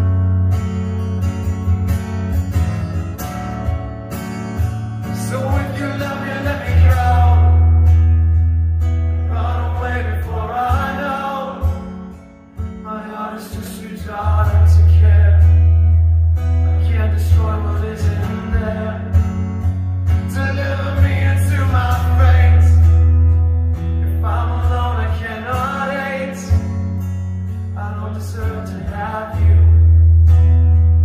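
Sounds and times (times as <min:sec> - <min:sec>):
heavy bass line: 0:06.4 - 0:10.4, 0:29.4 - 0:31.0.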